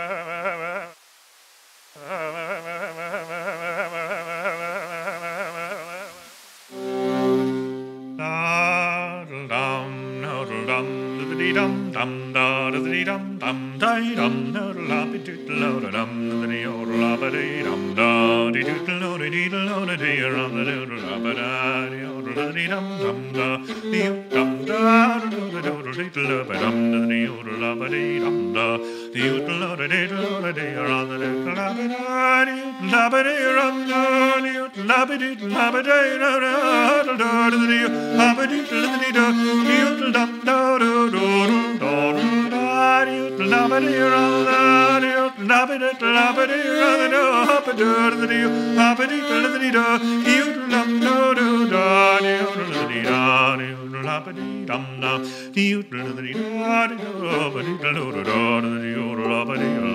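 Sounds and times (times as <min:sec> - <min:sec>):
fiddle melody: 0:00.0 - 0:01.0, 0:02.0 - 0:59.9.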